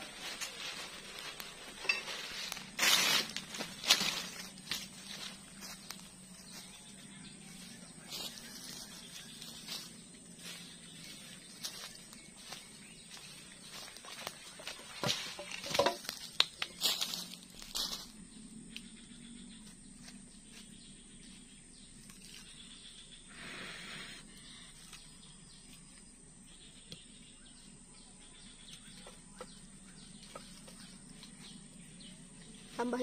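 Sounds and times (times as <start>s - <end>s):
firewood sticks clattering: 0.1s - 5.2s, 14.2s - 17.9s.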